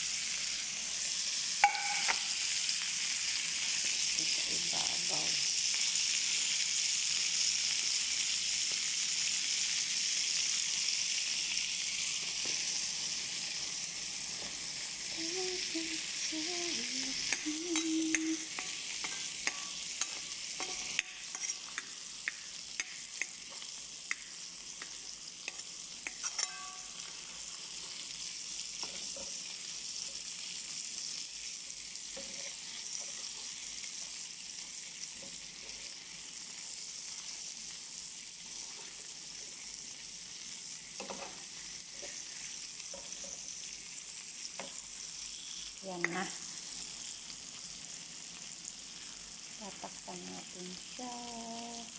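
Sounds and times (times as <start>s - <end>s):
food sizzling in a frying pan: 0.0s - 51.9s
metal spoon clicking against pan: 1.6s - 2.3s, 17.3s - 23.4s, 24.1s - 27.0s.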